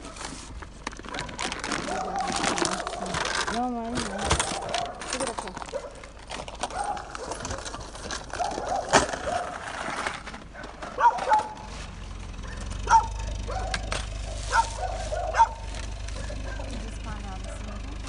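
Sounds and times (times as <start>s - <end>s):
dog barking: 1.1s - 3.2s, 4.1s - 5.1s, 5.7s - 6.0s, 6.7s - 9.6s, 10.6s - 11.7s, 12.4s - 15.7s, 16.3s - 18.0s.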